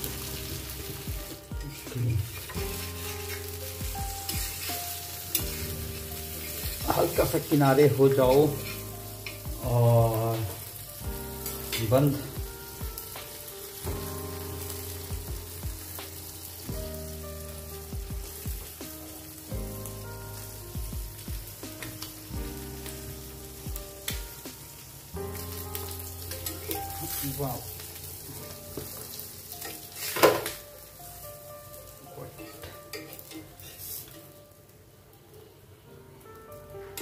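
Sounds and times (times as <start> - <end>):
background music with held notes: 0.0 - 37.0
food sizzling on hot iron: 0.0 - 37.0.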